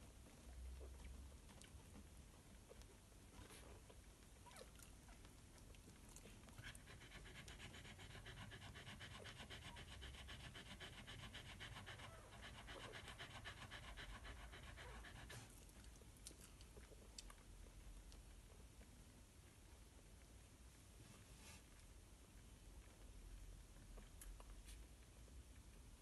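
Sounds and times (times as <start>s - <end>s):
dog panting: 6.2s - 16.0s.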